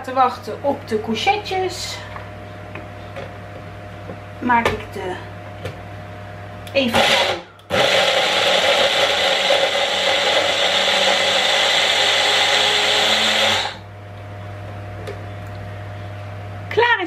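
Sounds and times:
steady low hum: 0.0 - 17.0
blender grinding cheese: 6.9 - 13.8.

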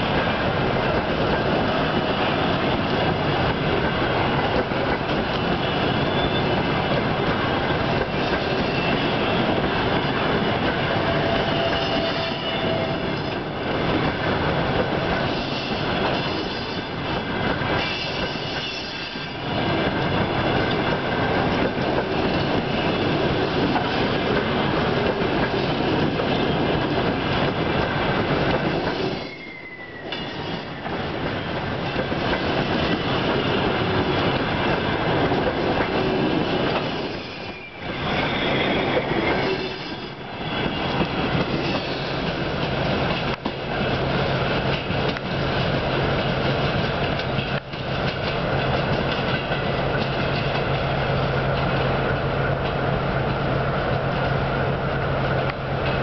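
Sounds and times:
train wheels rumbling on rails: 0.0 - 56.0
wheel squeals: 5.8 - 6.6, 28.9 - 31.0, 36.7 - 42.2.

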